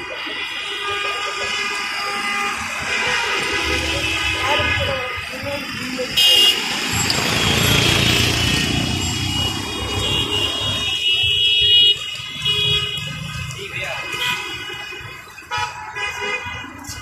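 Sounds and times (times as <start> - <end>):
passing cars: 0.0 - 17.0
vehicle horn honk: 0.2 - 5.5, 6.2 - 13.2.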